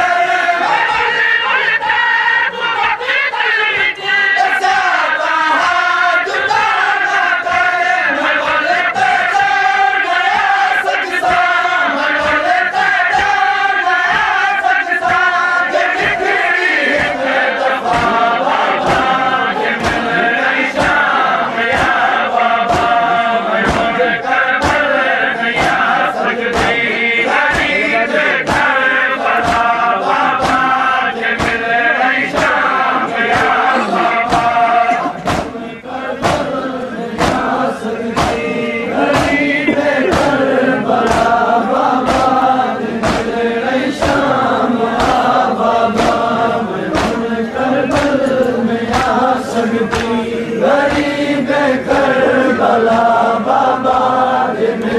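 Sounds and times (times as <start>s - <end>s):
men chanting in unison: 0.0s - 54.9s
rhythmic chest-beating: 0.0s - 54.9s.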